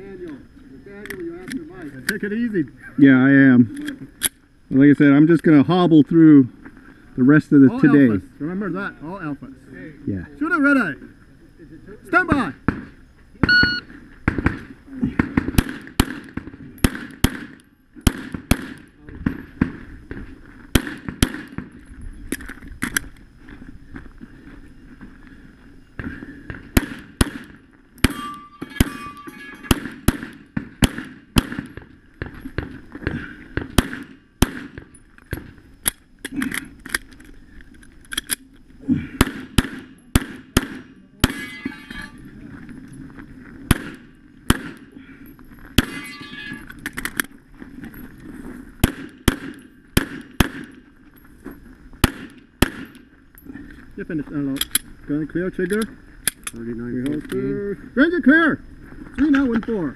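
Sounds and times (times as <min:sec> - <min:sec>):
handgun shots: 0:26.8 - 0:31.8
short ringing: 0:28.1 - 0:29.8, 0:41.3 - 0:42.2, 0:45.9 - 0:46.7.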